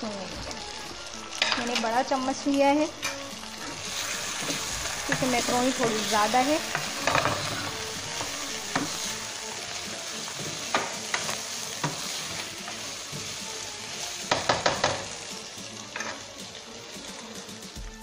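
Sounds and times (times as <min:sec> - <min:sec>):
food sizzling in a frying pan: 0:00.0 - 0:18.0
spatula knocking on pan: 0:06.7 - 0:09.1, 0:14.2 - 0:15.2.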